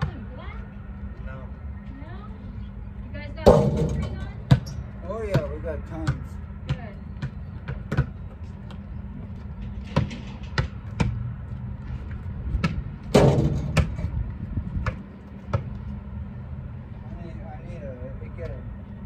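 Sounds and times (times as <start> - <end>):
basketball bouncing on asphalt: 0.0 - 0.3, 3.5 - 15.9
steady low rumble: 0.1 - 19.0.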